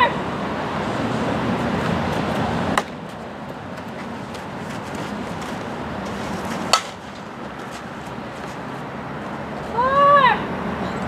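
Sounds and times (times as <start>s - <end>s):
wind: 0.0s - 11.0s
sharp crack: 6.5s - 7.2s.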